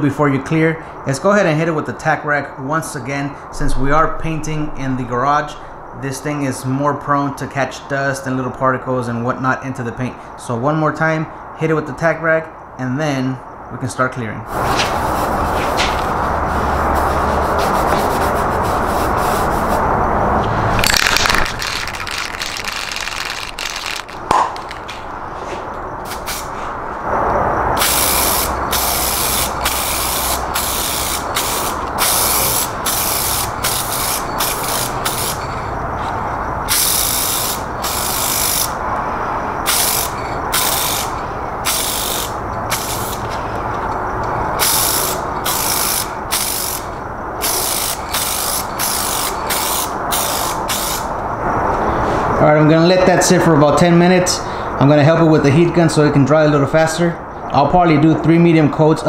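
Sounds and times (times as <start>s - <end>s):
aerosol can spraying hiss: 16.9s - 19.8s, 26.1s - 26.5s, 27.8s - 35.4s, 39.7s - 41.1s, 41.7s - 43.2s, 44.6s - 46.8s, 47.4s - 51.1s.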